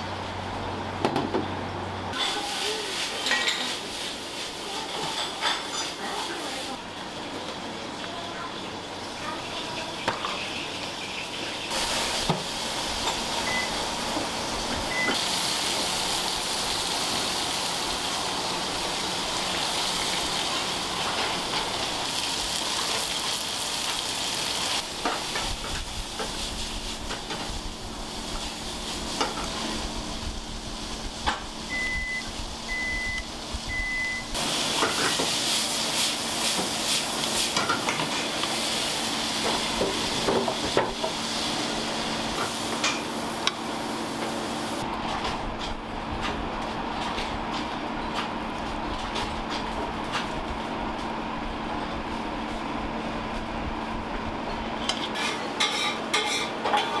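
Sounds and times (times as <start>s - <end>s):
chicken deep-frying in oil: 2.0s - 57.0s
short electronic beeps: 31.7s - 34.3s.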